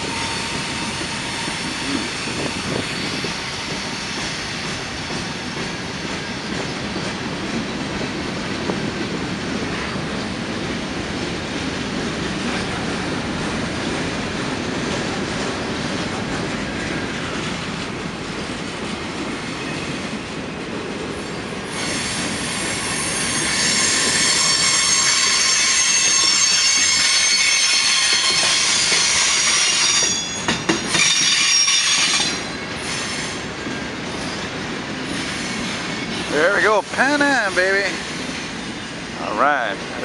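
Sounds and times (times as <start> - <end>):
freight train wheels on track: 0.0 - 40.0
high wheel squeal: 21.7 - 33.5, 34.2 - 39.0.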